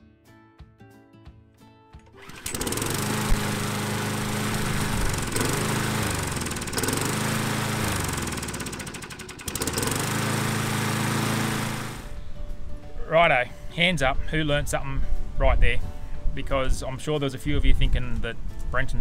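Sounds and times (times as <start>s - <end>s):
lawn mower engine running: 2.1s - 12.2s.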